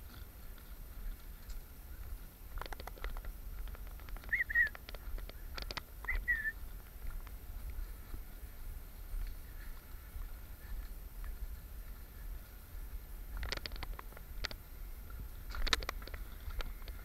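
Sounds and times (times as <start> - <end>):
bird chirping: 4.1 - 6.6.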